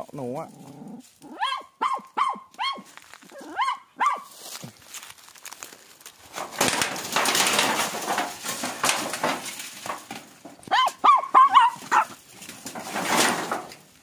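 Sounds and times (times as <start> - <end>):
rustling in dry ground cover: 0.0 - 14.0
dog yelping whimpers: 1.2 - 4.3, 10.7 - 12.1.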